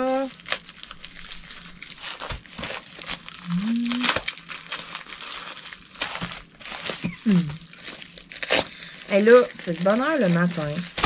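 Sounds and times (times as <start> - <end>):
plastic packaging crinkling and tearing: 0.0 - 11.0
person humming: 3.4 - 4.2, 7.2 - 7.6.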